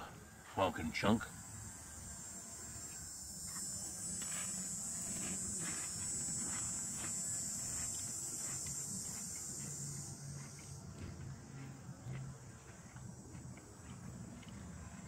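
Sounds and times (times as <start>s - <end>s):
insects buzzing: 0.0s - 15.0s
faint crunching of chewing: 5.0s - 15.0s.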